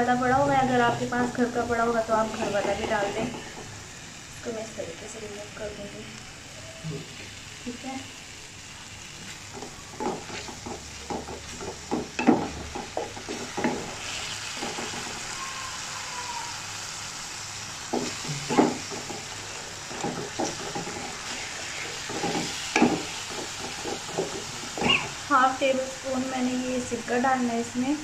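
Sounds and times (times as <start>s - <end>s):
sauce sizzling in oil: 0.0s - 28.0s
wooden spatula scraping pan: 2.2s - 3.7s, 9.3s - 15.1s, 17.9s - 25.2s.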